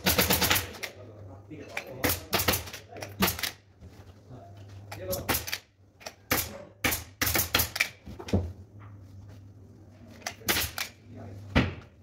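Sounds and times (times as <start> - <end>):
staple gun firing: 10.3 - 10.9.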